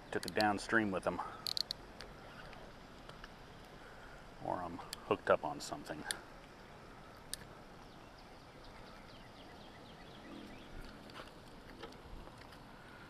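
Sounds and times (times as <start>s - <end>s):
fishing reel clicking: 1.4s - 1.8s.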